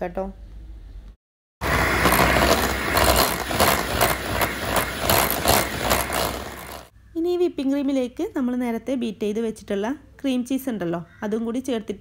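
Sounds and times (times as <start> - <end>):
electric hand mixer rattling: 1.6 - 6.9.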